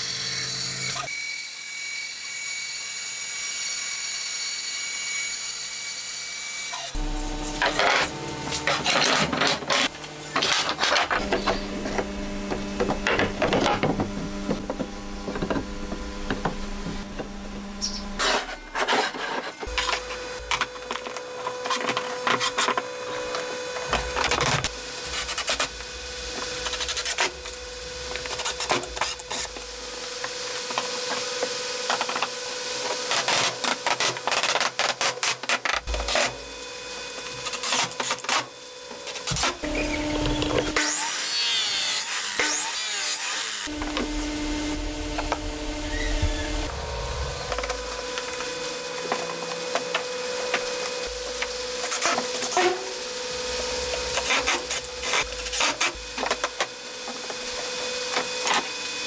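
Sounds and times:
wood scraping on workbench: 0:18.2 - 0:20.1.

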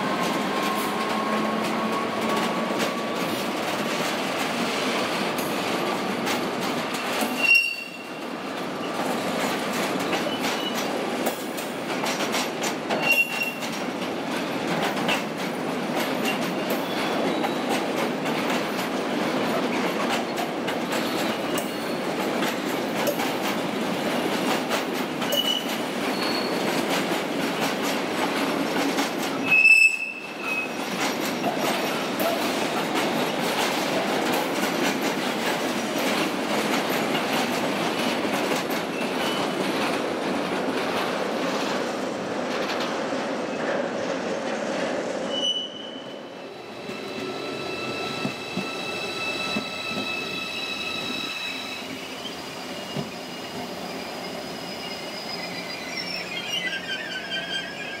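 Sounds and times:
train wheels rumbling on rail: 0:00.0 - 0:58.0
high wheel squeals: 0:07.3 - 0:08.2, 0:25.3 - 0:26.7, 0:45.3 - 0:58.0.

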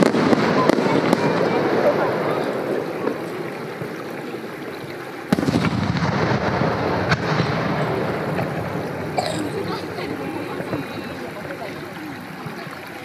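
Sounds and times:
sharp firework crack: 0:00.0 - 0:03.2, 0:05.3 - 0:09.2
firework exploding with boom: 0:00.0 - 0:04.0, 0:05.3 - 0:09.2.

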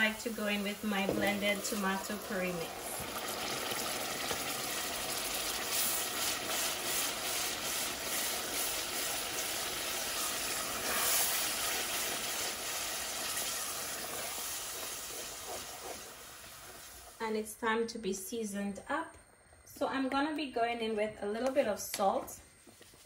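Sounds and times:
sauce sizzling in hot oil: 0:00.0 - 0:17.2.

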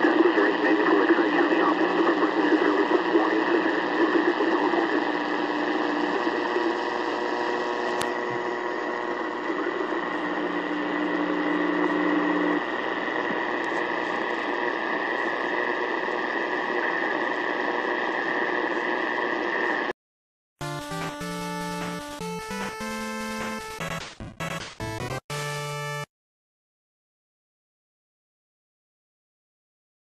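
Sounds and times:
radio static hiss: 0:00.0 - 0:19.9.

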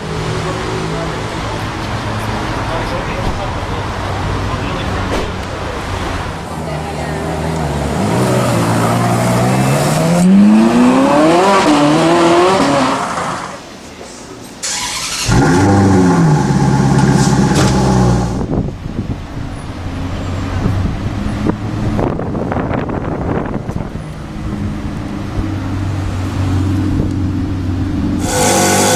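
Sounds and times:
street noise: 0:00.0 - 0:28.9
car engine revving: 0:07.2 - 0:13.6, 0:14.6 - 0:18.6, 0:25.6 - 0:28.9
car engine blipped: 0:14.7 - 0:18.8, 0:24.4 - 0:28.9.

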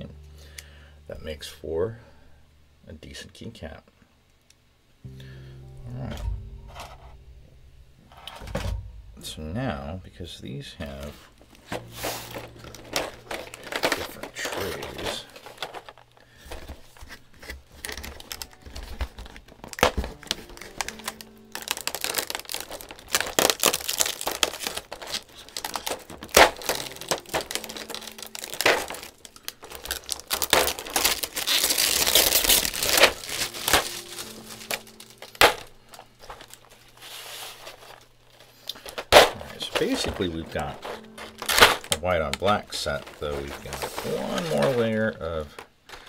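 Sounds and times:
plastic trays crinkling and clattering: 0:10.8 - 0:46.0.

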